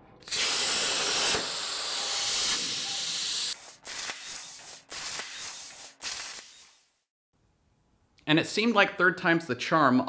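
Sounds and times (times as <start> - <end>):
plasma cutter torch hissing: 0.2 - 7.0.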